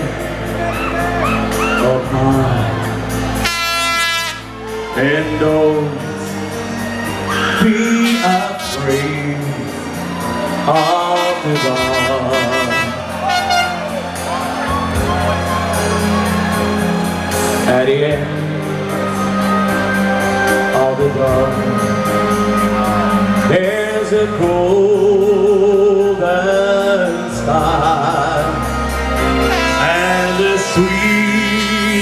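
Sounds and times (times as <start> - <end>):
amplified backing music with beat: 0.0 - 32.0
man singing into microphone: 1.5 - 3.0, 4.3 - 13.8, 17.4 - 32.0.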